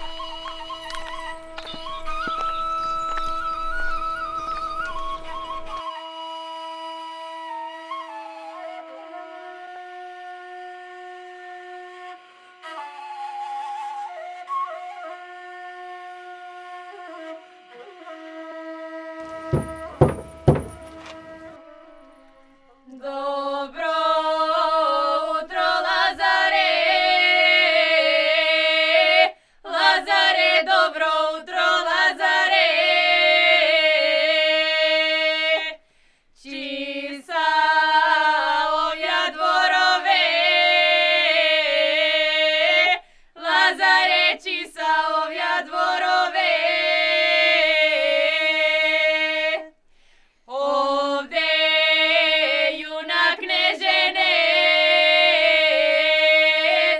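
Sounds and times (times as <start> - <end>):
women singing unaccompanied: 22.9 - 35.8, 36.4 - 49.7, 50.5 - 56.9.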